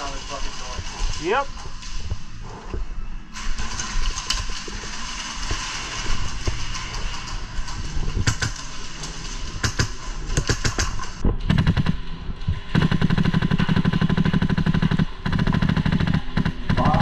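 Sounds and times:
airsoft rifle firing: 0:09.6 - 0:12.1, 0:12.7 - 0:17.0.

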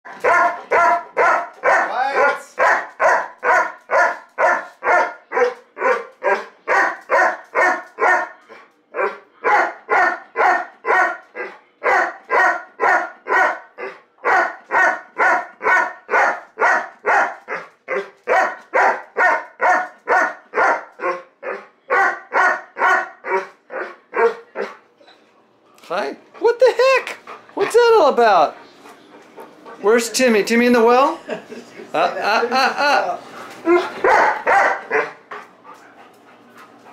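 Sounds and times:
dog barking: 0:00.1 - 0:08.4, 0:09.0 - 0:24.8, 0:33.7 - 0:35.2.

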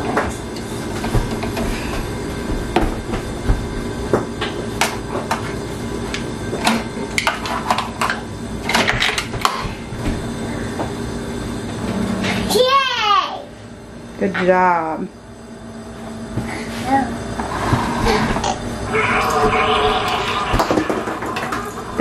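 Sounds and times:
low hum: 0:17.4 - 0:22.0.

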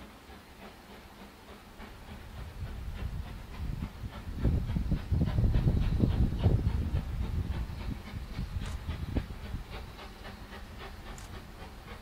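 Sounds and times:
steam locomotive exhaust beats: 0:00.0 - 0:12.0.

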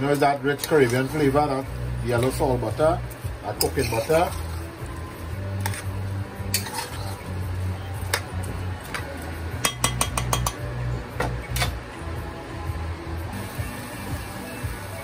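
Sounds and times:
background music: 0:00.0 - 0:15.0
metal spoon scraping pot: 0:00.5 - 0:01.3, 0:03.5 - 0:04.7, 0:05.6 - 0:07.5
spoon tapping pot: 0:09.6 - 0:10.7.

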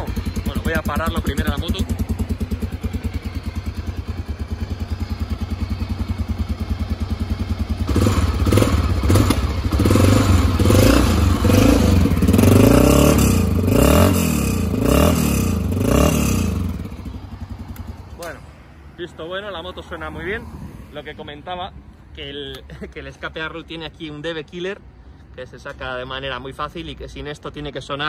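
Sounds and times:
motorcycle engine idling and revving: 0:00.0 - 0:24.5.

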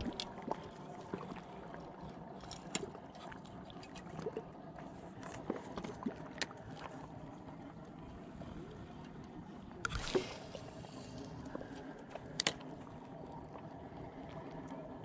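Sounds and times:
small waves lapping: 0:09.6 - 0:13.1.

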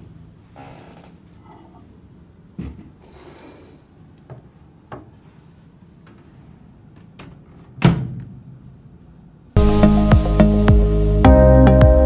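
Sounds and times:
glass bowl scraping: 0:03.0 - 0:03.9.

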